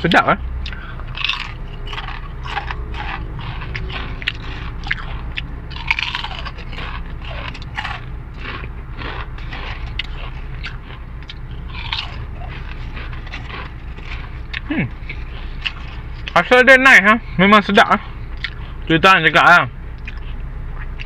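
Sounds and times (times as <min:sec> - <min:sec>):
steady low hum: 0:00.0 - 0:21.0
crisps crunching in a mouth: 0:00.7 - 0:16.4.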